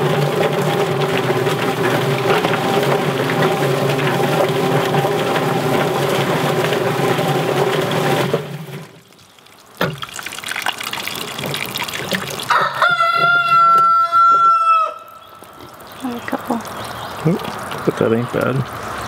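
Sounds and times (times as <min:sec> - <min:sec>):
chicken plucker motor spinning: 0:00.0 - 0:08.9
hose spraying water: 0:00.0 - 0:14.7, 0:15.4 - 0:19.0
rooster crowing: 0:12.4 - 0:15.2.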